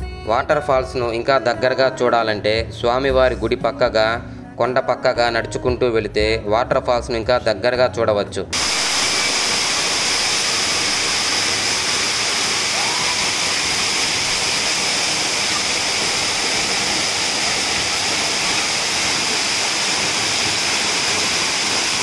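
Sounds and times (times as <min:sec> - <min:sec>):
waterfall rushing: 0:08.6 - 0:22.0.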